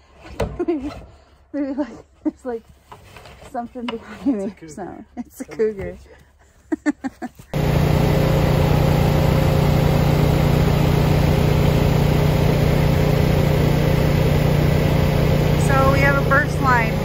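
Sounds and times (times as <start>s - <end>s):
generator engine humming: 7.5s - 17.0s.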